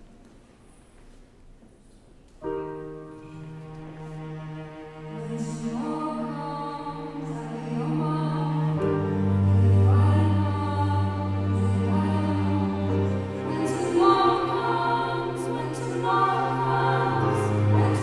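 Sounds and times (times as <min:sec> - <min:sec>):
soft string accompaniment: 0:00.0 - 0:18.0
vocal ensemble singing: 0:05.8 - 0:18.0.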